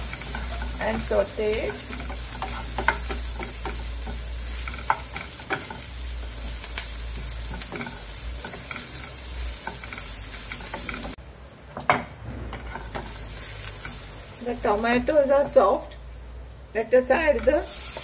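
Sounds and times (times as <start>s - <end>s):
spatula scraping and tapping pan: 0.0s - 11.2s
vegetables sizzling in oil: 0.0s - 18.0s.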